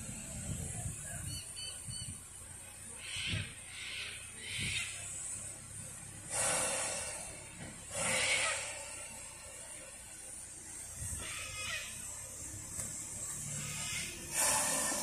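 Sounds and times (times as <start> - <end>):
steam hissing chuffs: 3.7 - 15.0
steam hiss bursts: 4.9 - 15.0.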